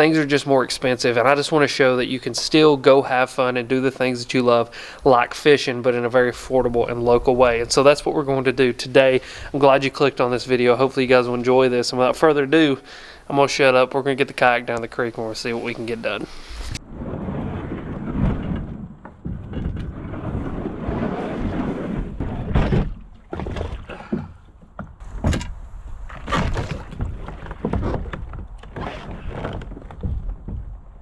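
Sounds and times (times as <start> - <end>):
kayak hull scraping and knocking: 0.1 - 3.2, 15.2 - 31.0
rustling: 14.7 - 16.8
thumps: 17.5 - 31.0.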